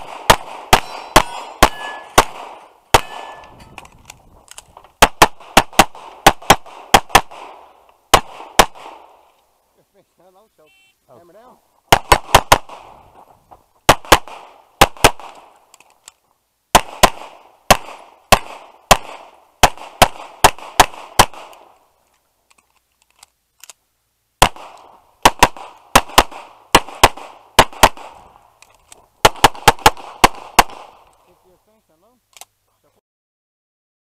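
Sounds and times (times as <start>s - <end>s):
pistol shots: 0.0s - 3.6s, 5.0s - 9.2s, 11.9s - 13.0s, 13.9s - 15.5s, 16.7s - 21.8s, 24.4s - 28.3s, 29.2s - 31.0s.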